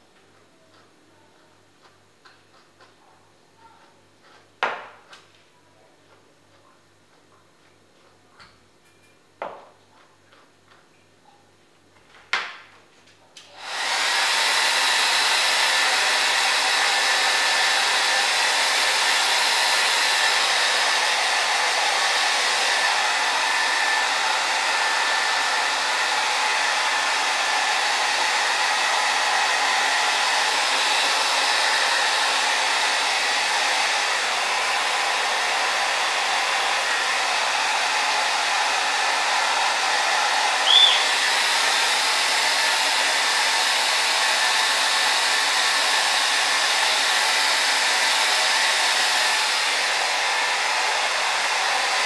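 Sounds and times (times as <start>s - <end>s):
hair dryer blowing: 13.5s - 52.0s.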